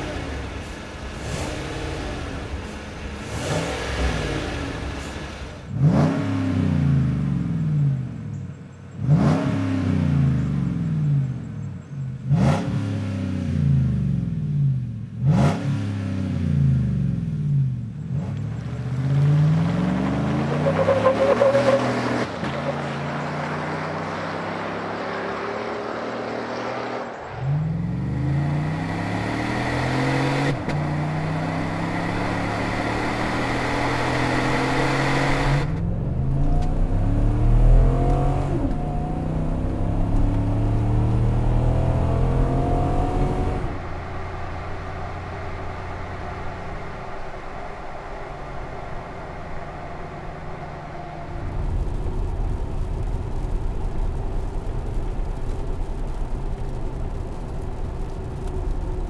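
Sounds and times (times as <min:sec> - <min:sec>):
truck engine revving: 0:00.0 - 0:07.6, 0:18.1 - 0:58.5.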